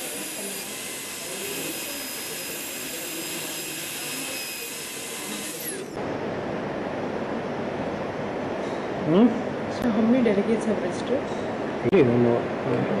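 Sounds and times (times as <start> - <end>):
dental drill whining: 0.0 - 6.0.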